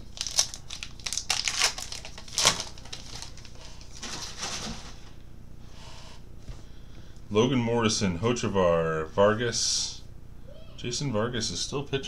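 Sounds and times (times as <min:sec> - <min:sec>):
cards rustling: 0:00.0 - 0:04.8
wrapper tearing and crinkling: 0:00.0 - 0:04.8.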